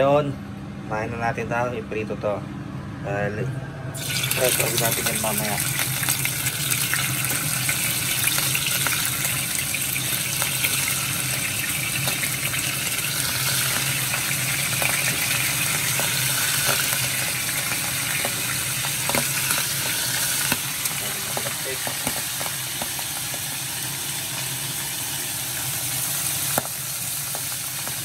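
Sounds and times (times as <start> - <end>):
low hum: 0.0 - 22.0
fish sizzling in oil: 4.0 - 28.0.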